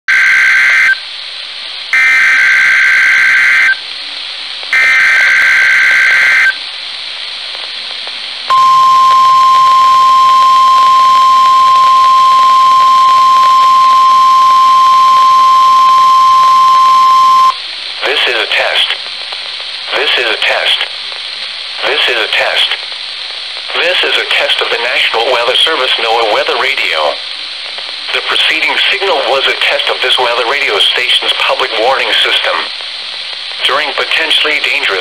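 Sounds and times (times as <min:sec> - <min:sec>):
radio hiss: 0:00.1 - 0:35.0
warning alarm tone: 0:08.5 - 0:17.6.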